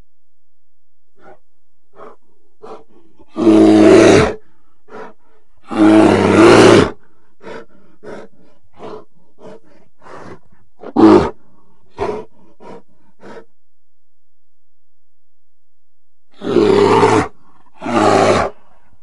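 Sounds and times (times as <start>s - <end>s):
bear roaring: 1.2s - 13.5s, 16.3s - 18.8s.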